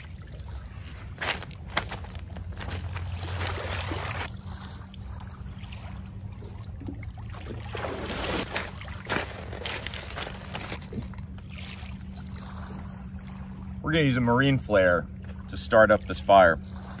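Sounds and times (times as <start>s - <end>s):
waves lapping on pebbles: 0.0s - 5.9s, 7.4s - 14.2s
footsteps wading in water: 0.0s - 17.0s.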